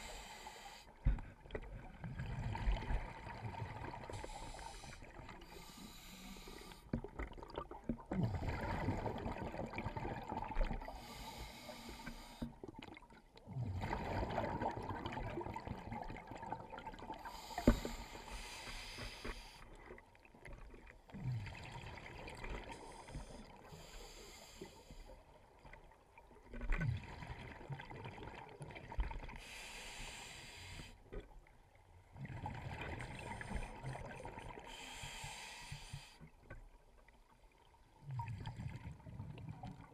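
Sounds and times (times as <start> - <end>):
hissing regulator inhales: 0.0 - 0.9, 4.1 - 6.9, 10.8 - 12.5, 17.2 - 19.6, 23.0 - 25.1, 29.4 - 31.0, 34.7 - 36.2
bubbling exhales underwater: 7.3 - 11.1, 13.4 - 17.9.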